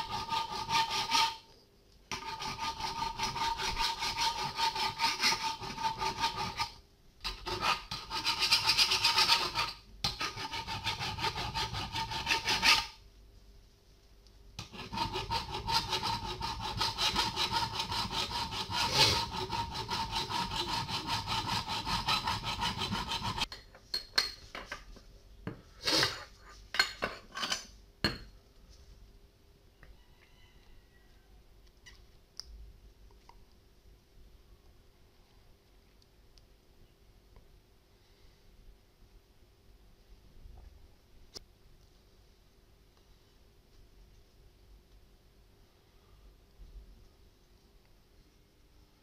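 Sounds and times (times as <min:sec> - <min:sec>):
file rasping on steel bar: 0:00.0 - 0:01.5, 0:02.1 - 0:13.0, 0:14.6 - 0:23.5.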